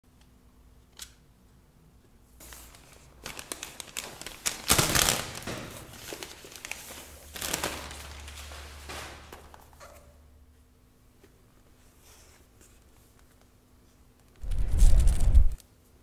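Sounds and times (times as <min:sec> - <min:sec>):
plastic crinkling: 0:02.4 - 0:09.9.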